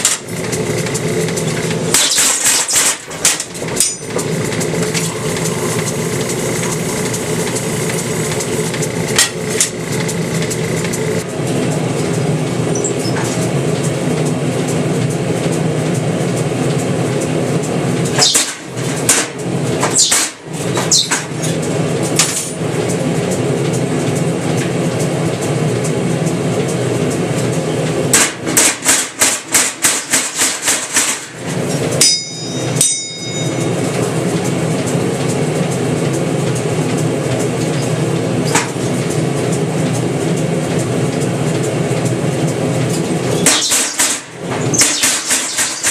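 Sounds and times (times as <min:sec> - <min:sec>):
shop machinery drone: 0:00.0 - 0:45.9
ringing metallic clank: 0:03.8 - 0:04.2, 0:32.0 - 0:33.8.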